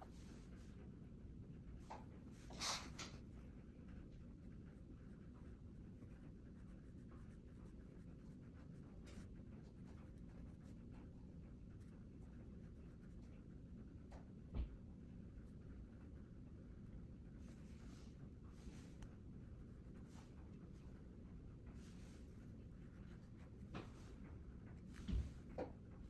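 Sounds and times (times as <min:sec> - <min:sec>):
brush scratching on paper: 0:02.3 - 0:13.6, 0:17.4 - 0:21.0, 0:21.6 - 0:25.6.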